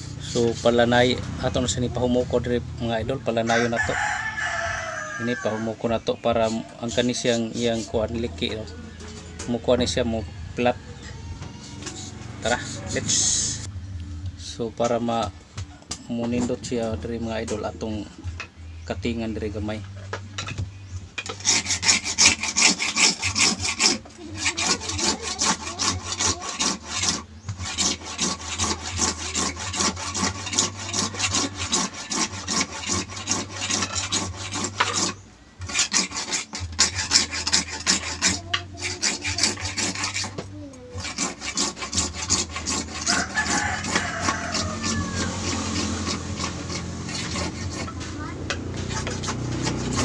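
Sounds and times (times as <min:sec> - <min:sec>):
hacksaw cutting plastic pipe: 0:21.2 - 0:50.0.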